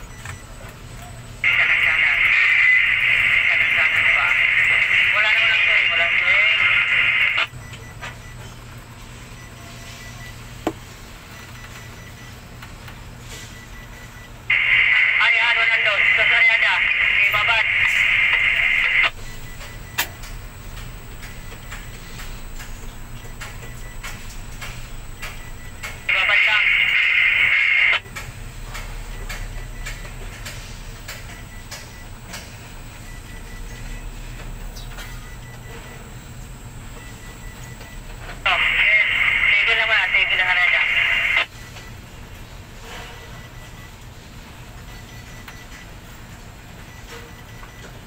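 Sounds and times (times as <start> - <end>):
crane machinery humming: 0.0 - 48.0.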